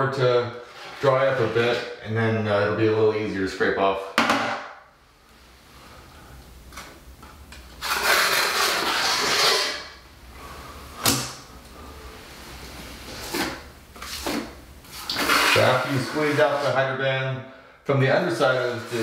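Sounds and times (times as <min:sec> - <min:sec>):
taping knife scraping: 0:07.8 - 0:10.0, 0:13.1 - 0:16.8, 0:18.4 - 0:19.0.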